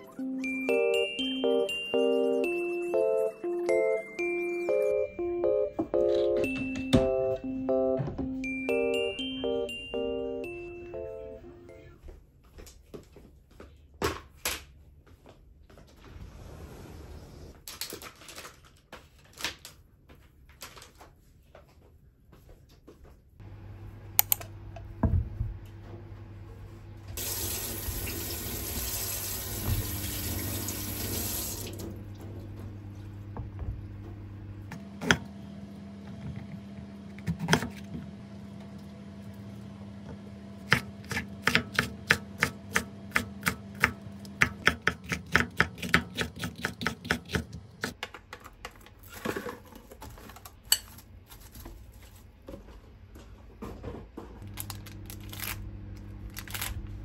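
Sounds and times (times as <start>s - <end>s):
kitchen tap running: 27.2s - 32.2s
knife chopping on wooden board: 40.7s - 48.0s
low steady hum: 54.4s - 57.0s.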